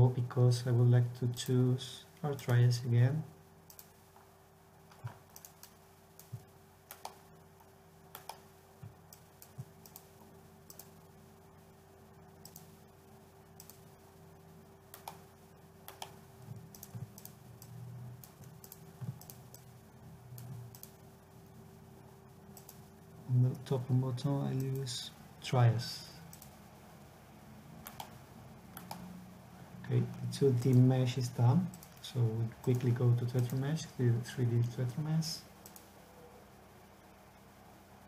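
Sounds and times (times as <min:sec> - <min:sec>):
faint steady hum: 0:00.0 - 0:38.0
mouse and keyboard clicks: 0:08.1 - 0:08.4, 0:10.7 - 0:11.0, 0:14.9 - 0:15.2, 0:15.9 - 0:19.7, 0:28.8 - 0:29.0.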